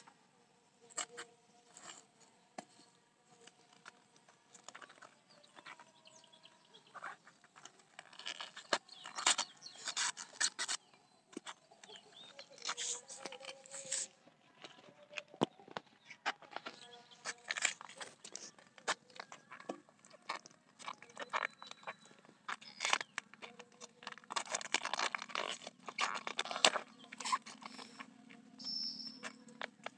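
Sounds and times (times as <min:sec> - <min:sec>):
fibrous sheaths ripping: 0:07.0 - 0:14.2, 0:16.4 - 0:28.2.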